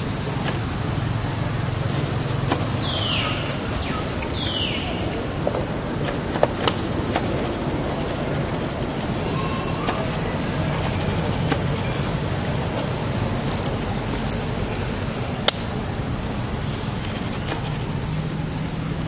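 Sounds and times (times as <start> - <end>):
low outdoor rumble: 0.0 - 19.0
thin high hum: 0.0 - 19.0
sharp clicks: 12.7 - 15.8.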